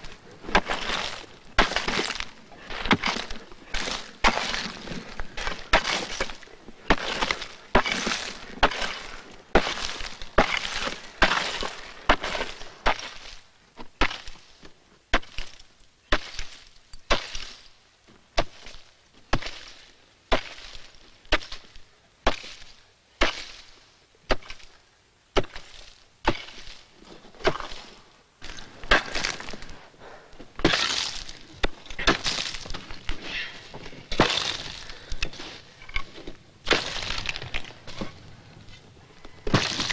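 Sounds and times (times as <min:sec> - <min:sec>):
ice splintering: 0:00.5 - 0:13.2, 0:27.4 - 0:29.8, 0:30.6 - 0:36.0, 0:36.6 - 0:38.1, 0:39.4 - 0:39.9
axe chopping ice: 0:00.5 - 0:13.4, 0:14.0 - 0:14.4, 0:20.3 - 0:21.6, 0:22.3 - 0:23.6, 0:24.3 - 0:24.7, 0:25.4 - 0:26.7, 0:27.4 - 0:27.8, 0:28.4 - 0:29.6, 0:30.6 - 0:33.2, 0:34.1 - 0:35.4, 0:36.6 - 0:38.1, 0:39.5 - 0:39.9.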